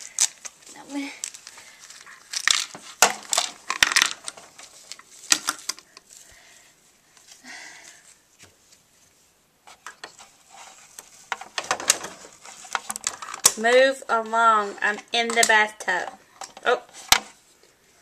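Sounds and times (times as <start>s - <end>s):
rustle: 0.0s - 15.7s
plastic toys clicking and knocking: 2.3s - 6.1s, 11.3s - 13.9s, 14.9s - 17.4s.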